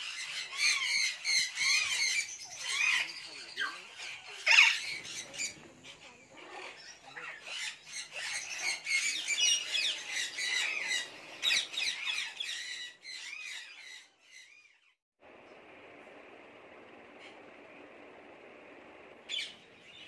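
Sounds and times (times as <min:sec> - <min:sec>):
parrots squawking and chattering: 0:00.0 - 0:15.0.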